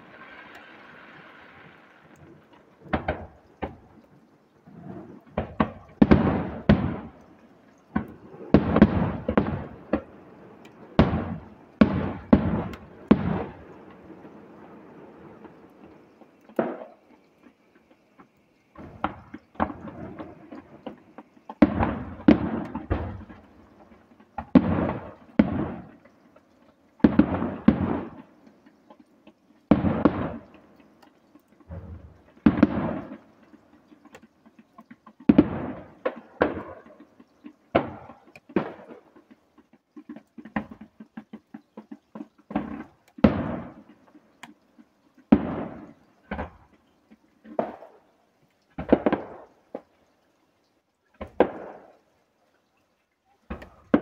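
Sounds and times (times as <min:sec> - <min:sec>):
fireworks bangs: 0:00.0 - 0:04.0, 0:04.7 - 0:17.9, 0:18.7 - 0:26.2, 0:27.0 - 0:28.4, 0:29.7 - 0:30.6, 0:31.7 - 0:39.3, 0:40.0 - 0:44.1, 0:45.2 - 0:46.8, 0:47.4 - 0:48.0, 0:48.8 - 0:49.8, 0:51.2 - 0:51.9, 0:53.5 - 0:54.0.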